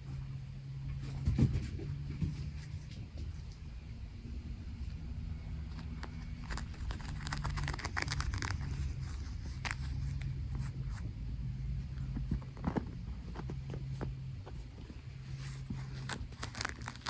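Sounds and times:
kitten rustling against fur: 0:05.6 - 0:11.1, 0:14.8 - 0:17.0.

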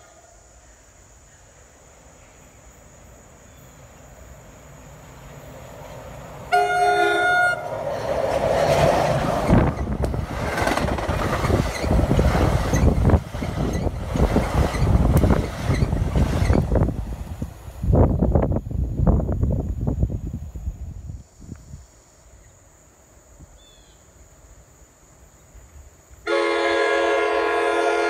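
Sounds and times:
train rumbling past: 0:00.0 - 0:21.2
train horn blast: 0:06.5 - 0:07.8, 0:26.3 - 0:28.0.

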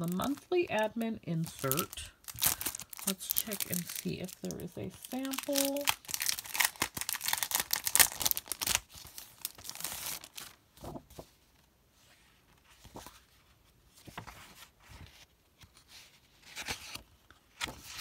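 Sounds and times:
cellophane crinkling: 0:00.0 - 0:11.0
paper rustling: 0:00.0 - 0:11.5, 0:12.1 - 0:18.0.

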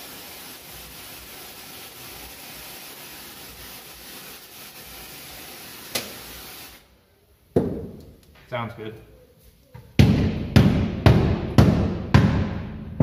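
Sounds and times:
aerosol spray hissing: 0:00.0 - 0:06.9.

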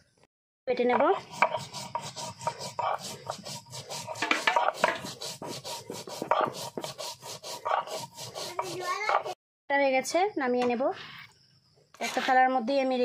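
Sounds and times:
stone grinding on stone: 0:00.8 - 0:09.4.

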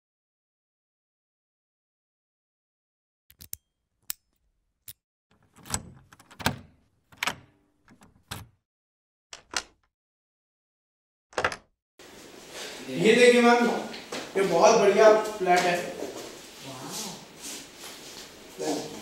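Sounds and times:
lock clicks: 0:04.9 - 0:08.6, 0:09.3 - 0:09.9
door lock knocking and rattling: 0:05.3 - 0:08.6, 0:11.3 - 0:11.7.

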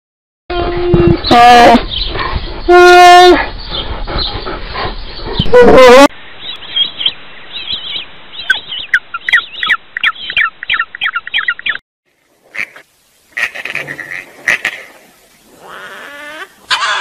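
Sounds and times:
flamingos calling: 0:12.5 - 0:17.0.

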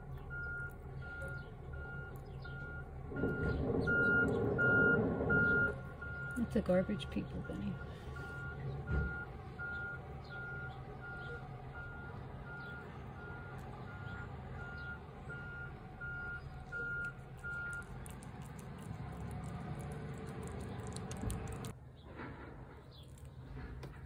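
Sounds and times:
truck reversing alarm beeping: 0:00.0 - 0:18.9
truck low rumble: 0:00.0 - 0:24.0.

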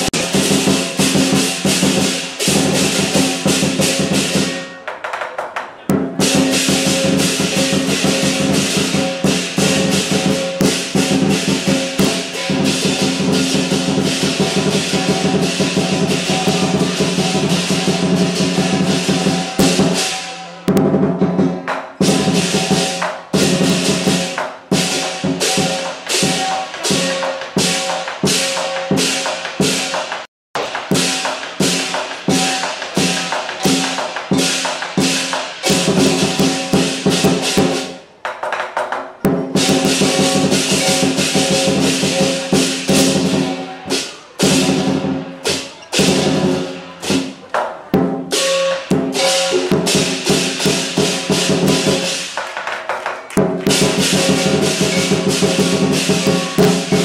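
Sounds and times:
cymbals clashing: 0:00.0 - 0:05.2, 0:05.9 - 0:38.2, 0:39.2 - 0:57.0
drum beating: 0:00.0 - 0:57.0
gong: 0:06.3 - 0:29.9, 0:48.3 - 0:52.2, 0:53.7 - 0:57.0.

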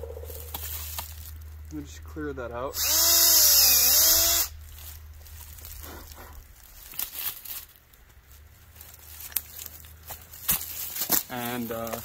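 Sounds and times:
faint rustling: 0:04.6 - 0:12.0.

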